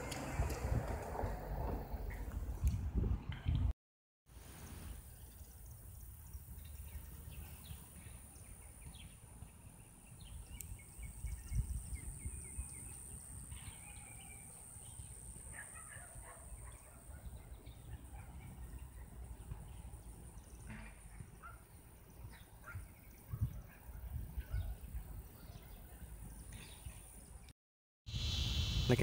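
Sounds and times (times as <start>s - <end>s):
wind rumble on microphone: 0.0s - 3.7s, 10.2s - 13.8s, 22.2s - 27.0s.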